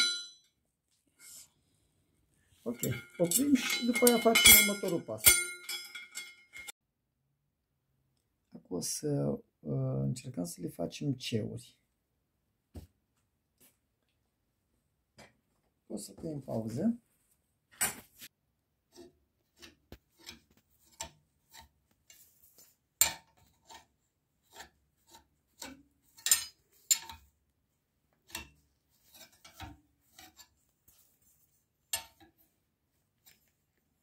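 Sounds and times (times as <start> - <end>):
iron bar scraping on steel pins: 28.3 - 30.5.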